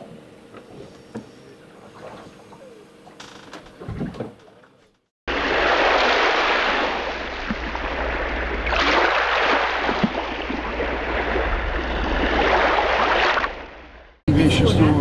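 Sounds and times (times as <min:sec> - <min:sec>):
rushing water: 0:05.3 - 0:14.1.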